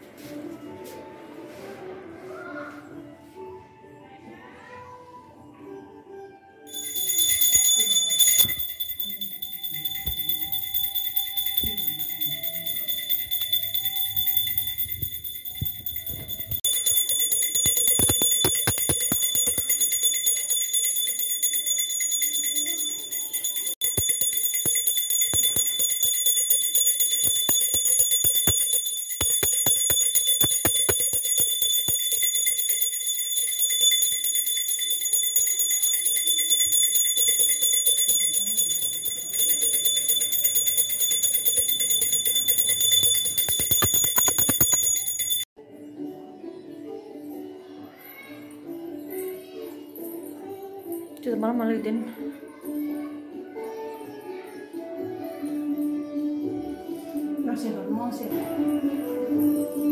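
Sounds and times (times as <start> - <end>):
small hand bell ringing: 6.7 - 45.6.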